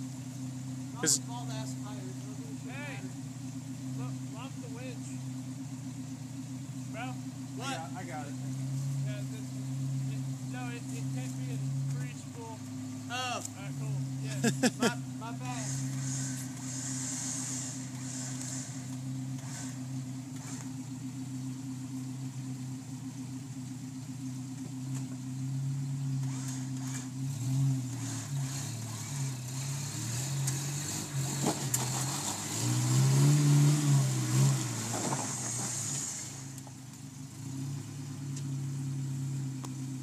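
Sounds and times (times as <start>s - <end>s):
truck engine running: 0.0s - 40.0s
electric winch motor humming: 26.2s - 27.2s.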